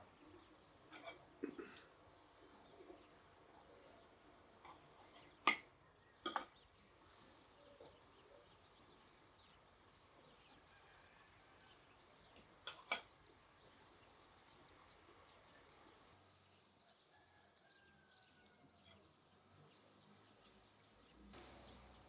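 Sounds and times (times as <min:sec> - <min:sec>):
faint birdsong: 0:00.0 - 0:22.0.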